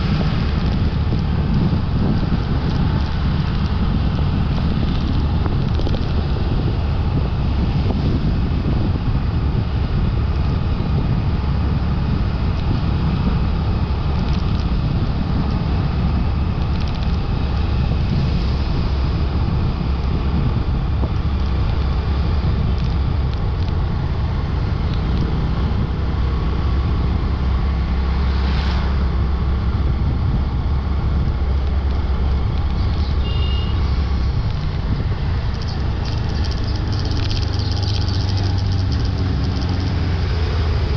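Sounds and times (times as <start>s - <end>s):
motorbike running: 0.0s - 40.9s
wind buffeting microphone: 0.0s - 40.9s.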